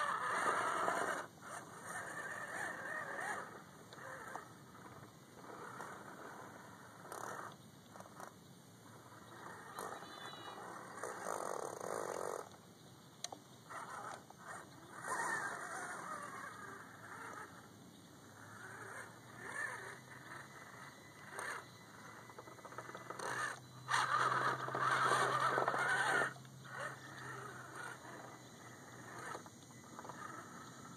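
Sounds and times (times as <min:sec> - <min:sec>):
electric motor and gears humming: 0:00.0 - 0:30.9.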